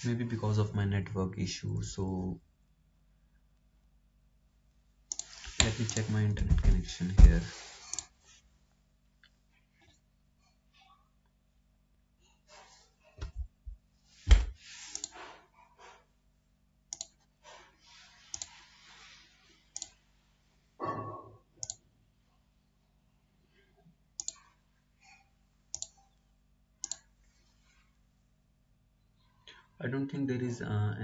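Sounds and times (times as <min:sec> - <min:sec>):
computer mouse clicks: 0:05.1 - 0:06.2, 0:14.3 - 0:15.3, 0:16.9 - 0:17.3, 0:18.3 - 0:18.6, 0:19.7 - 0:20.0, 0:21.6 - 0:21.8, 0:24.2 - 0:24.5, 0:25.7 - 0:26.1, 0:26.8 - 0:27.1.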